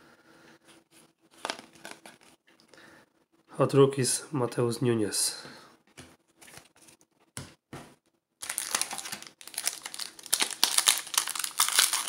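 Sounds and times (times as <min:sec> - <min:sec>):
foil wrapper crinkling: 0:08.4 - 0:12.0.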